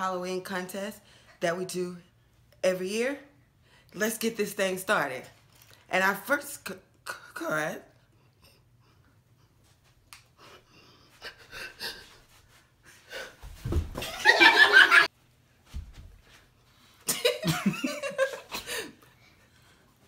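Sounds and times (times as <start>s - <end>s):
body thudding on floor: 13.4s - 14.4s
woman laughing: 14.0s - 15.1s, 17.1s - 19.0s.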